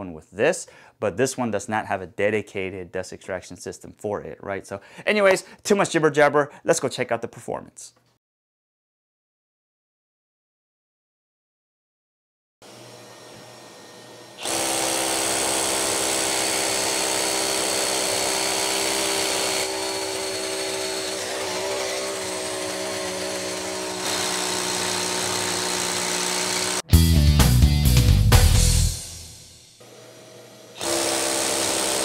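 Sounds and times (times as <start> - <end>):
rotary hammer drilling into concrete: 14.4 - 26.8, 30.8 - 32.0.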